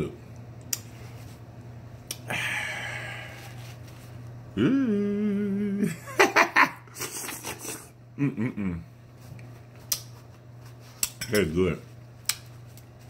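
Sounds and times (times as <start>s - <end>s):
man humming mmm: 2.1s - 3.6s, 4.5s - 6.0s, 7.6s - 9.0s
man slurping: 7.0s - 8.0s.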